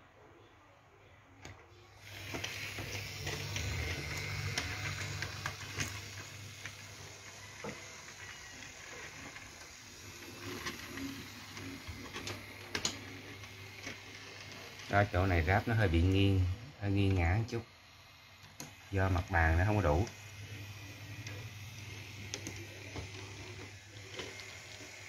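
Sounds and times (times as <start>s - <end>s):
toy train motor hum: 1.7s - 25.0s.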